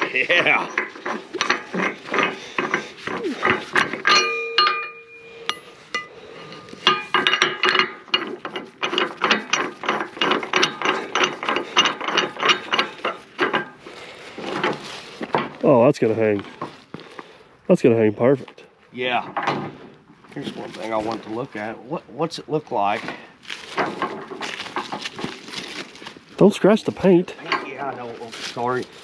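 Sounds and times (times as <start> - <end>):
metal hardware clanking: 0.0 - 15.6, 26.4 - 28.2
short metallic ring: 4.0 - 8.0.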